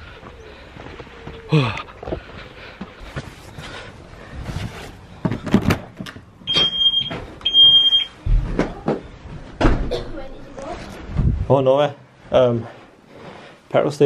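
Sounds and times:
footsteps: 0:00.0 - 0:07.5
low thud: 0:09.6 - 0:10.1.

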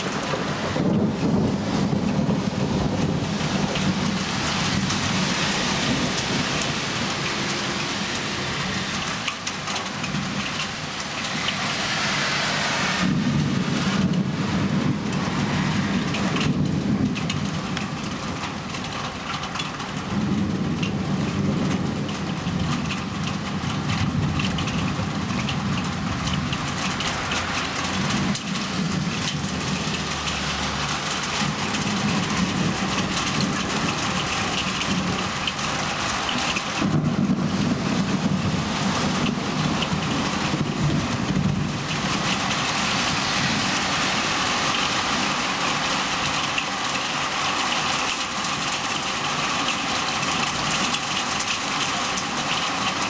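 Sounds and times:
heavy rain falling: 0:00.0 - 0:53.0
low rolls of thunder: 0:00.2 - 0:07.2, 0:13.0 - 0:18.5, 0:20.0 - 0:27.0, 0:31.3 - 0:43.9.

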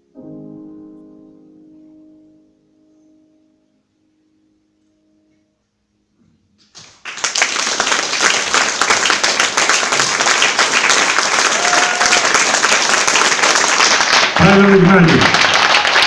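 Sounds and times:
audience applauding: 0:06.7 - 0:16.0.

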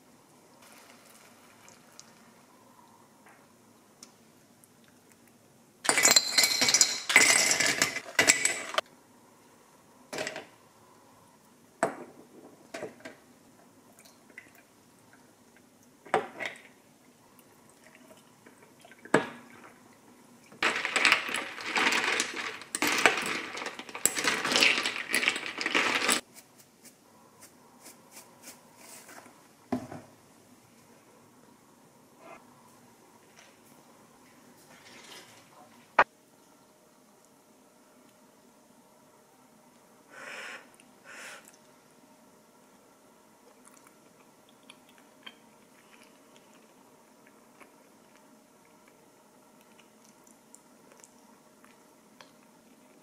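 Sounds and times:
ice cubes clattering into glass jug: 0:05.9 - 0:08.8, 0:20.6 - 0:26.2.

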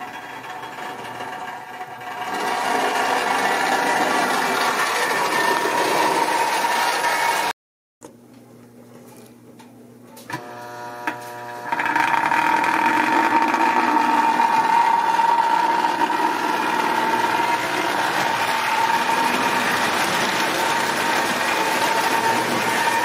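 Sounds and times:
toy train motor whine: 0:10.3 - 0:23.0.

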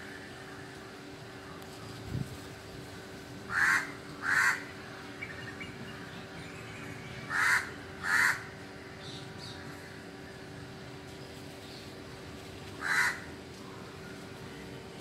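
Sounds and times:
crow cawing: 0:03.5 - 0:04.7, 0:07.3 - 0:08.6, 0:12.8 - 0:13.4.

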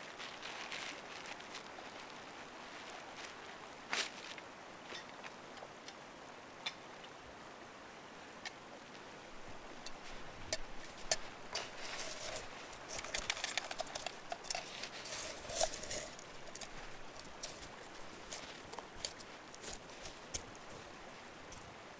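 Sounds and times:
snow crunching: 0:09.4 - 0:21.8.

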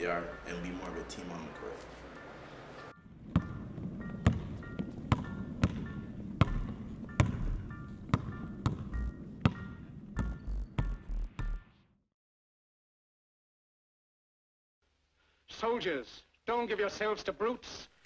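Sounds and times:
background music with high notes: 0:00.0 - 0:11.8
basketball bouncing on wooden floor: 0:03.3 - 0:03.6, 0:04.2 - 0:11.6.

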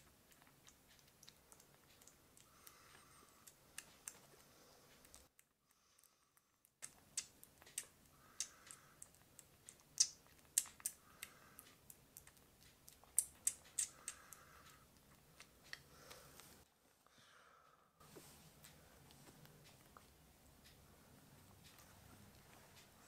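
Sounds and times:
kitten suckling from bottle: 0:00.0 - 0:16.5.

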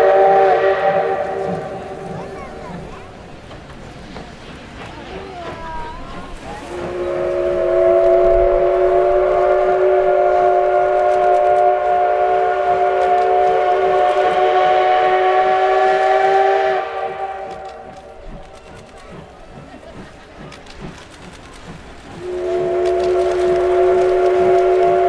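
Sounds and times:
steam whistle blast: 0:00.0 - 0:02.2, 0:06.7 - 0:17.9, 0:22.2 - 0:25.0.

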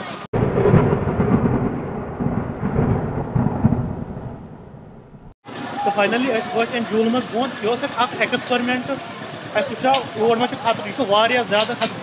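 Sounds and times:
wind buffeting microphone: 0:00.4 - 0:05.4.

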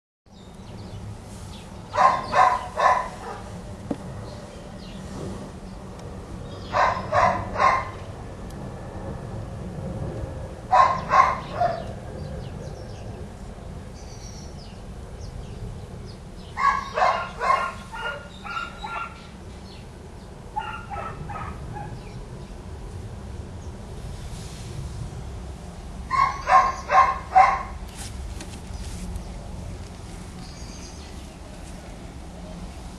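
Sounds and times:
steady low rumble: 0:00.7 - 0:32.9
dogs barking: 0:01.9 - 0:03.6, 0:06.6 - 0:08.0, 0:10.7 - 0:12.0, 0:16.5 - 0:19.3, 0:20.5 - 0:22.0, 0:26.1 - 0:27.8.

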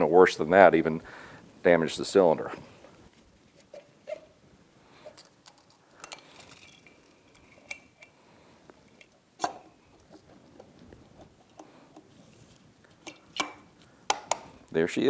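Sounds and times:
metal tools clinking: 0:05.2 - 0:08.1.

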